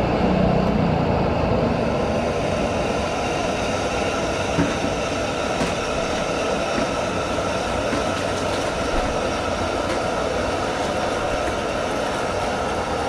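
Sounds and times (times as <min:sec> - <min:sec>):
gas burner rushing: 0:00.0 - 0:13.0.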